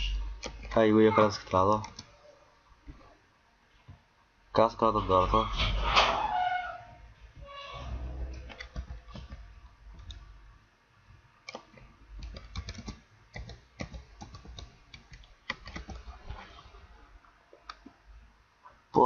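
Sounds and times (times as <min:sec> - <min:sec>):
keyboard typing: 0:01.7 - 0:02.1, 0:08.3 - 0:10.2, 0:11.5 - 0:16.1.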